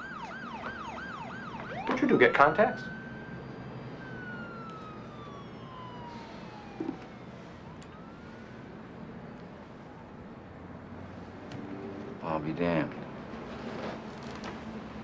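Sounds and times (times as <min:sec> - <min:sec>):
distant siren wailing: 0:00.0 - 0:12.4
city traffic hum: 0:00.0 - 0:15.0.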